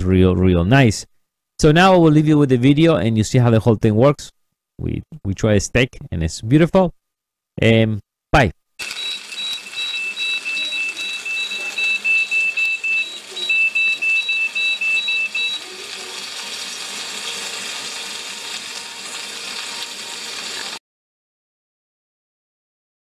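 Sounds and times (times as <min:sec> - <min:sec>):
thermometer alarm beeping rapidly: 0:08.8 - 0:15.7.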